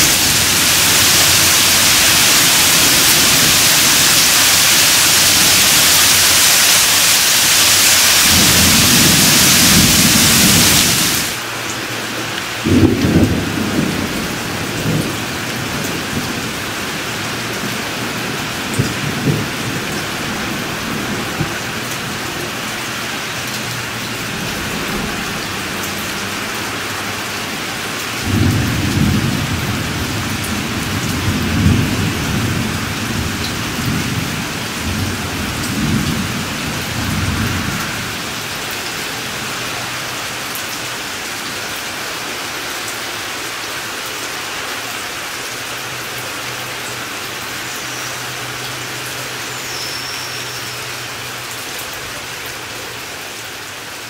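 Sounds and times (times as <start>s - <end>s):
thunder rolling: 0.0s - 11.4s, 12.6s - 22.4s, 28.2s - 38.3s
steady rain: 0.0s - 54.0s.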